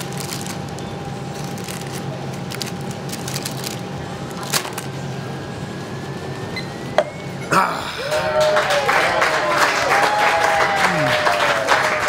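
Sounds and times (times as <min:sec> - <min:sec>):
paper liner crackling: 0:00.0 - 0:04.9
room hum with low drone: 0:00.0 - 0:12.0.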